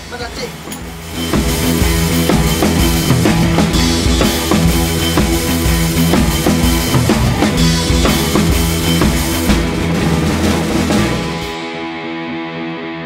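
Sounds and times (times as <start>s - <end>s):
music with drum beat: 0.0s - 11.9s.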